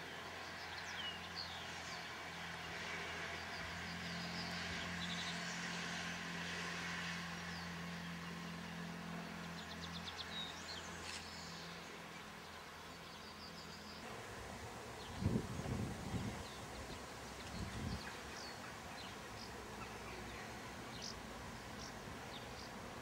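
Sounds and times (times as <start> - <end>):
low engine hum: 0.0 - 23.0
birds chirping: 7.5 - 23.0.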